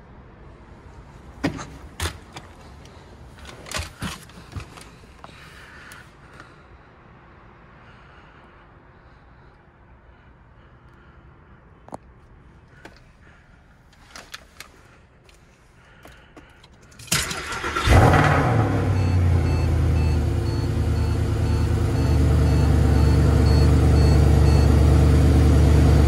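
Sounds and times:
car engine starting and idling: 15.8 - 26.0.

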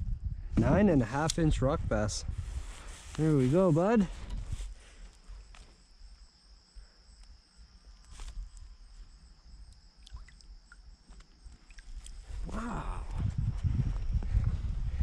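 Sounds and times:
water drips and splashes: 9.7 - 12.2.

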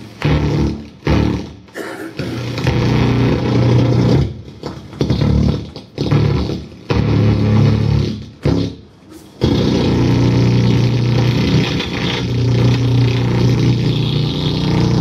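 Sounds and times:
distorted electric guitar: 9.4 - 15.0.

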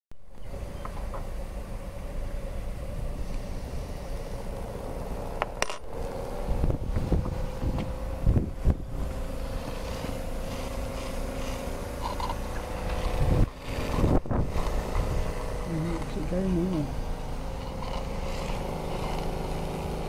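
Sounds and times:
steam engine humming: 0.5 - 20.0
wind rumbling on microphone: 4.9 - 20.0.

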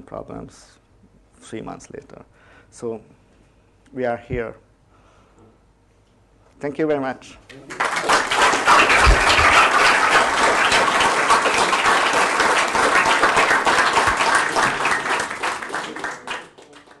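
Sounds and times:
audience applauding: 7.7 - 17.0.

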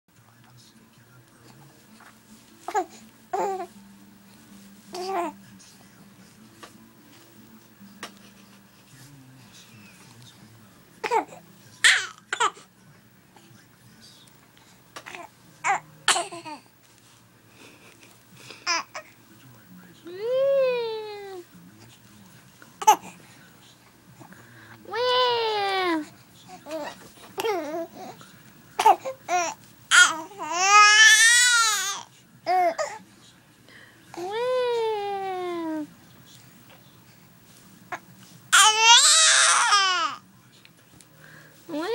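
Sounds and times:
baby babbling and cooing: 2.7 - 3.7, 4.9 - 5.4, 11.0 - 12.6, 15.0 - 16.7, 20.1 - 21.4, 24.8 - 28.2, 28.8 - 33.0, 34.2 - 35.9, 37.9 - 40.2.

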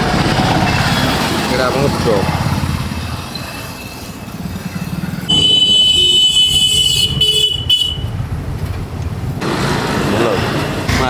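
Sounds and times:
road traffic rumble: 0.0 - 11.0
vehicle horn blast: 5.3 - 8.1.

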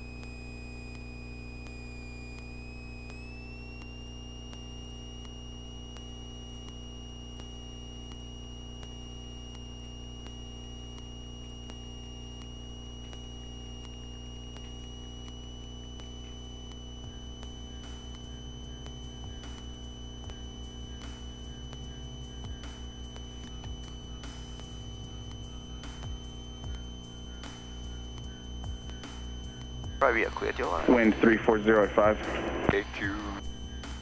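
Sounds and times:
high-pitched electrical whine: 0.0 - 34.0
faint ticks: 0.1 - 29.8
airplane engine drone: 20.9 - 34.0.

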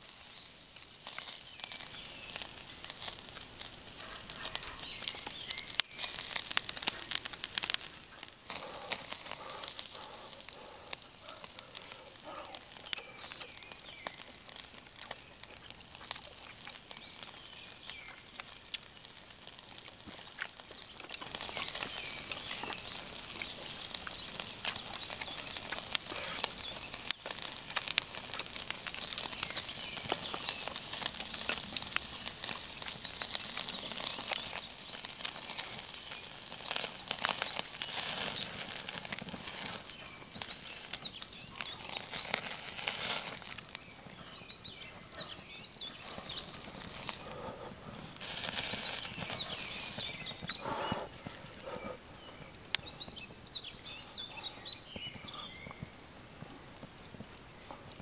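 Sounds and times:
fat crackling and popping: 0.0 - 58.0
meat sizzling on a grill: 0.0 - 58.0.

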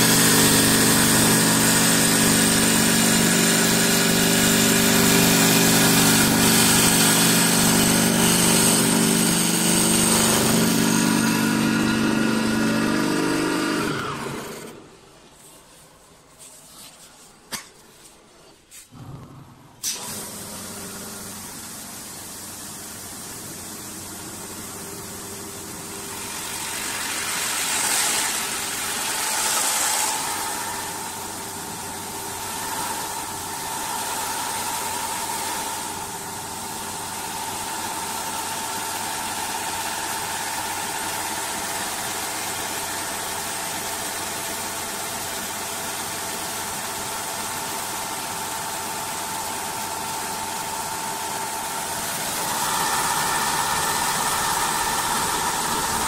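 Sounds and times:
lathe machine whine: 0.0 - 14.8, 50.7 - 56.0.

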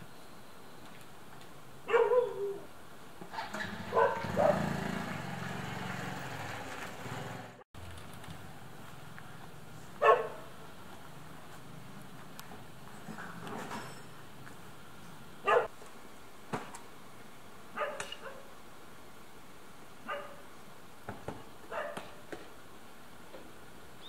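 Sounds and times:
dog barking: 1.9 - 2.6, 3.9 - 4.8, 10.0 - 10.5, 15.4 - 15.7, 17.8 - 18.5, 20.1 - 20.4, 21.7 - 22.2.

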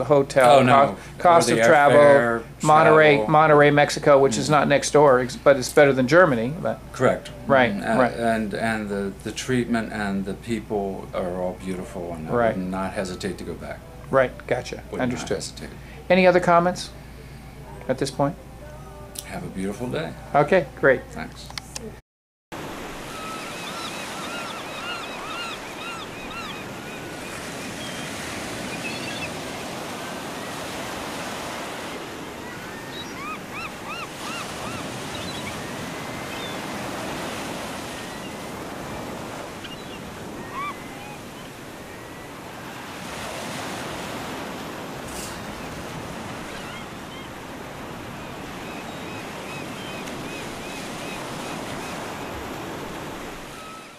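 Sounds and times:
ocean surf washing onto beach: 22.6 - 53.7
birds calling: 23.0 - 53.9.

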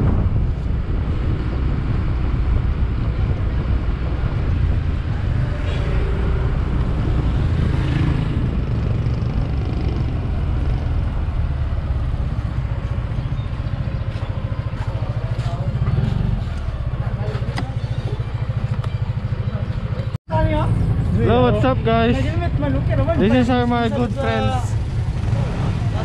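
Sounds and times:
wind rumble on microphone: 0.0 - 17.8
motorcycle engine running: 0.0 - 26.0.

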